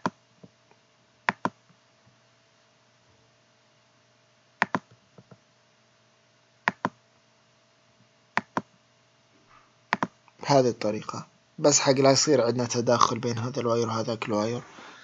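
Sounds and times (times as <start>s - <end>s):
computer mouse clicking: 1.3s - 1.6s, 4.6s - 5.4s, 6.7s - 7.0s, 8.4s - 8.7s, 9.9s - 10.2s.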